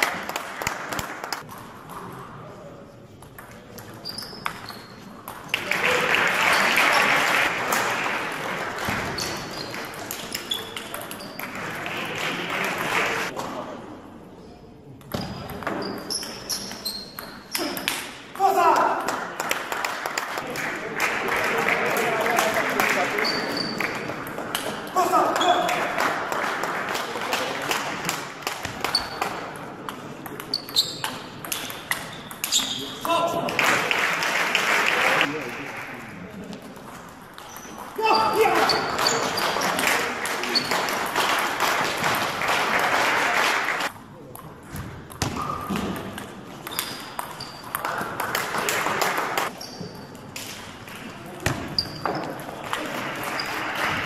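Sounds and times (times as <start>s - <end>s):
shoe squeaks on floor: 4.0s - 5.2s, 9.0s - 11.4s, 15.1s - 17.6s, 23.2s - 23.9s, 28.8s - 29.2s, 30.5s - 31.2s, 32.0s - 33.0s, 37.4s - 37.8s, 38.6s - 39.8s, 46.7s - 47.8s, 49.5s - 50.2s, 51.6s - 52.4s.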